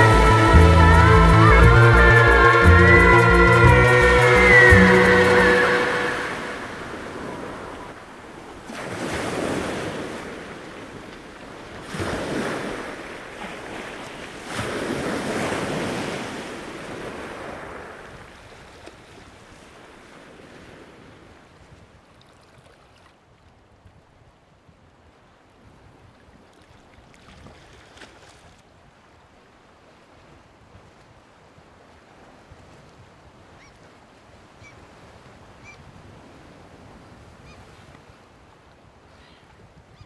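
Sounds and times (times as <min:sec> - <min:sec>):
sea waves washing in: 0:00.0 - 0:21.5.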